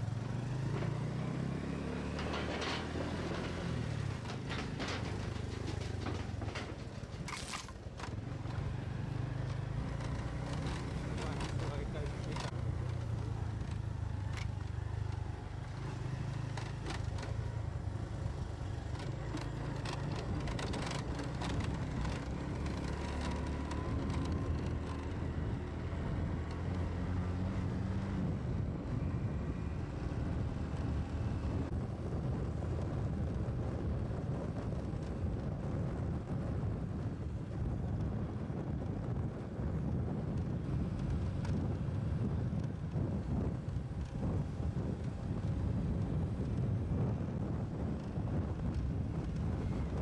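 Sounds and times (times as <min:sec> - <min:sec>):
short knocks and rattles: 0:02.1 - 0:08.1.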